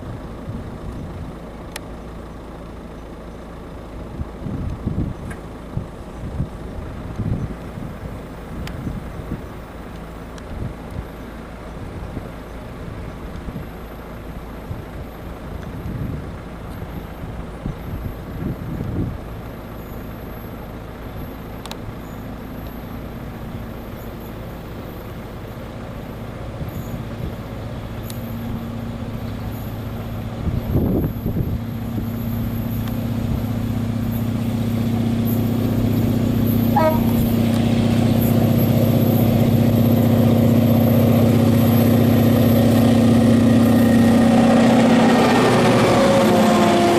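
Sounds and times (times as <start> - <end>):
diesel locomotive engine droning: 0.0 - 46.9
wind gusts on microphone: 4.1 - 9.6, 28.4 - 46.9.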